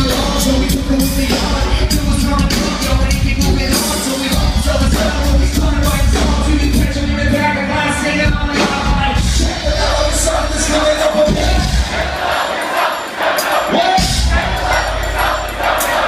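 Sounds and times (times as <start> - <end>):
heavy bass: 0.0 - 12.3, 14.0 - 16.0
steady drum beat: 0.0 - 16.0.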